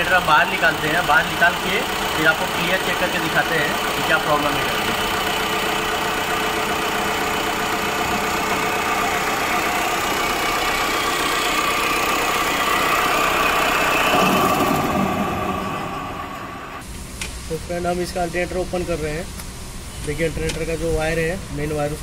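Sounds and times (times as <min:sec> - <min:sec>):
diesel engine idling: 0:00.0 - 0:16.8.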